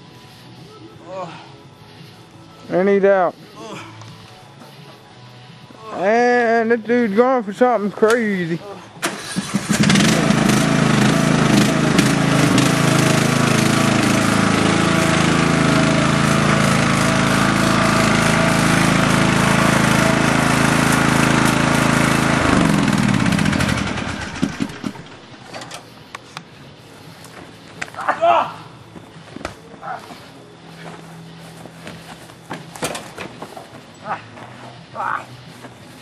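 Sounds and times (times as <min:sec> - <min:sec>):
small petrol engine running: 0:09.0 - 0:25.6.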